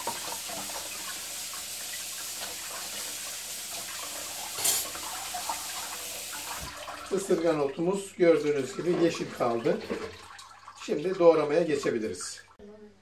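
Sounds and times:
tap water running into sink: 0.0s - 12.6s
water rushing: 4.0s - 12.6s.

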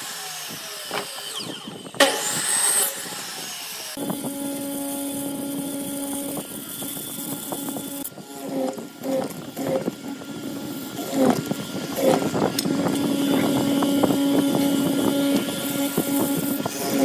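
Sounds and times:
motor hum: 0.0s - 17.0s.

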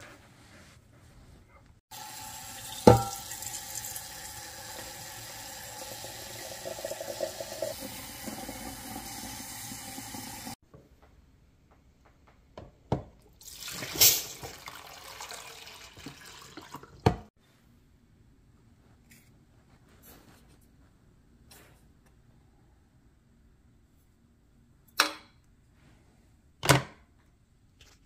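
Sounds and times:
tap water filling glass carafe: 2.0s - 10.5s, 13.5s - 17.3s.

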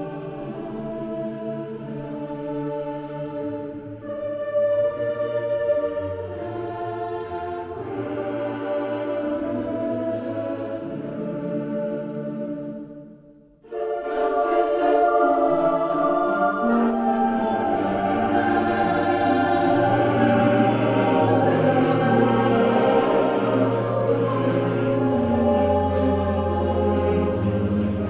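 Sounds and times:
choir singing sustained chords: 0.0s - 28.0s.

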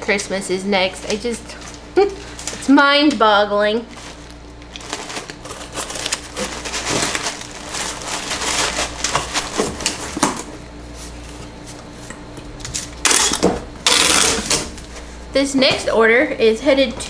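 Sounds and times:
paper wrap crinkling: 3.8s - 11.5s
packing tape rasping off tape gun: 13.0s - 14.7s.

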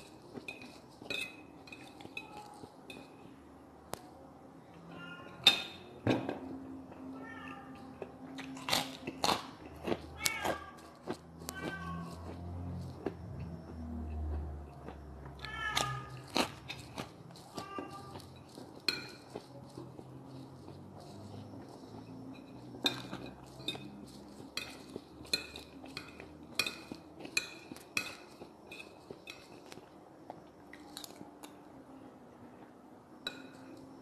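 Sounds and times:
chewing: 0.0s - 3.1s, 7.8s - 31.6s
cutlery scraping ceramic plate: 0.3s - 3.2s, 15.7s - 29.8s.

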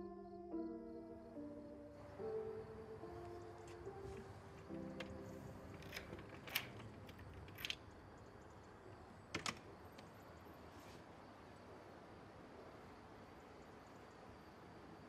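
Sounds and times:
faint sustained music notes: 0.0s - 7.1s.

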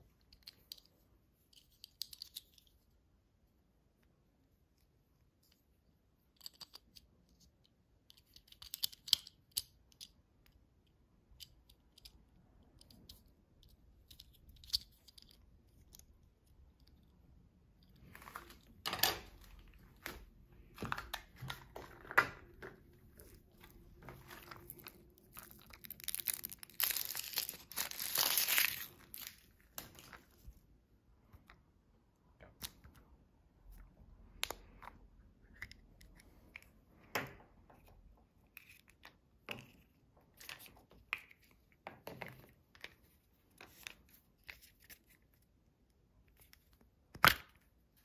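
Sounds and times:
plastic toy pieces clicking: 8.1s - 10.2s
foil wrapper crinkling and tearing: 24.6s - 29.5s.

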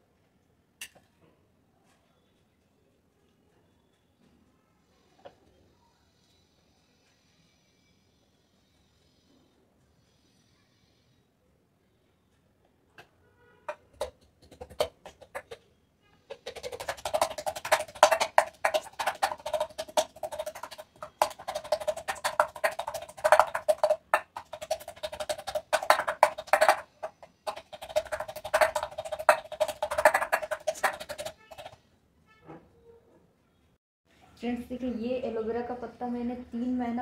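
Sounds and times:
metal tumbler pounding steel bowl: 13.7s - 15.6s, 16.3s - 31.8s.

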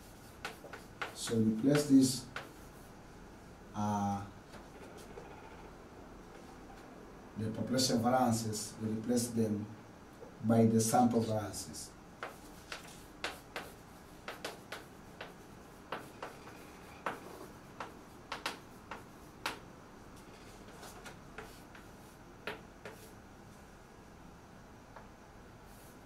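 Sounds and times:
chalk tapping on blackboard: 0.0s - 2.8s, 12.2s - 23.1s.

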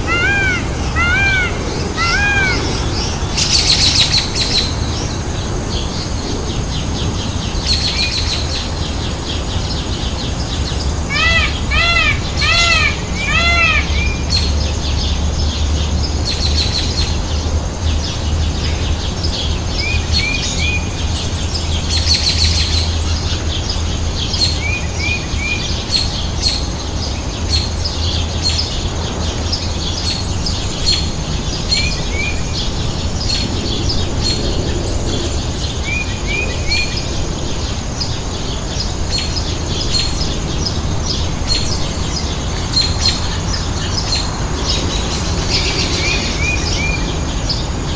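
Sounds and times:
high arched bird notes: 0.0s - 4.8s
steady low rumble: 0.0s - 20.1s
small birds chirping: 0.0s - 47.9s.

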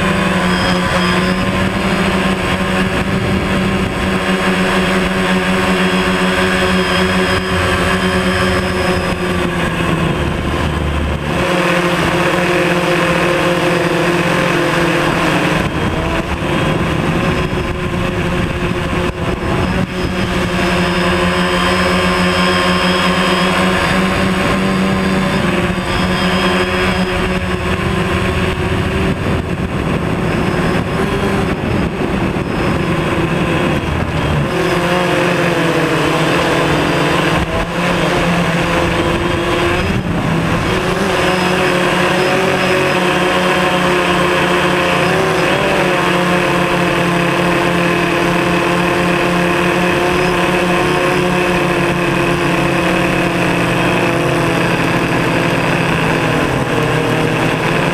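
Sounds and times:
drone propellers whining: 0.0s - 57.9s
low rumble: 5.5s - 11.5s.

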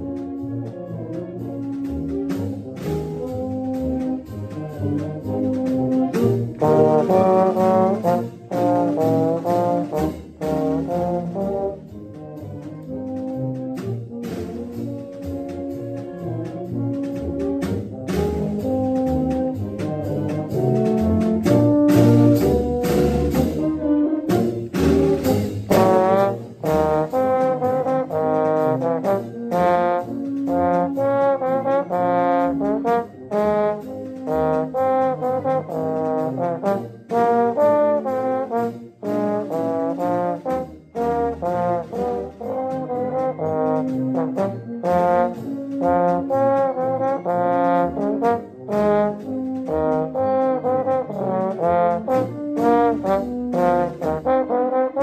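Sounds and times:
brass band playing: 0.0s - 55.0s.

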